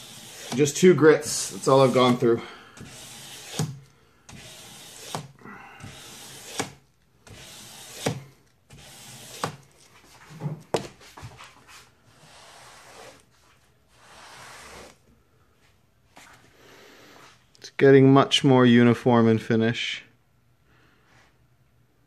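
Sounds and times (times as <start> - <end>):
sandpaper rasping on steel blade: 0.0 - 9.6, 12.2 - 13.2, 14.0 - 15.0.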